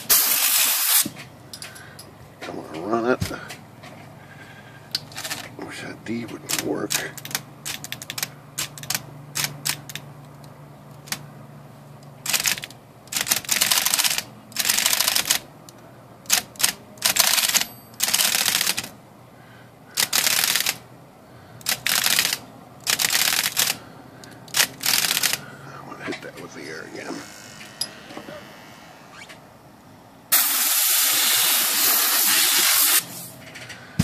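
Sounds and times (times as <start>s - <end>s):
spray bursts hissing: 0.0s - 1.2s, 30.3s - 33.4s
electric typewriter motor humming: 5.0s - 11.3s, 12.2s - 15.5s, 16.2s - 19.0s, 19.9s - 20.8s, 21.6s - 29.5s
typewriter typebars clicking: 6.4s - 10.0s, 12.2s - 15.4s, 16.2s - 18.9s, 20.0s - 20.8s, 21.6s - 23.8s, 24.5s - 25.4s.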